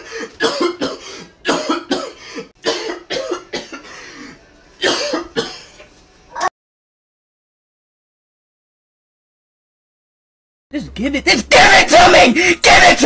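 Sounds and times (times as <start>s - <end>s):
man coughing hard: 0.0s - 3.9s, 4.8s - 5.7s.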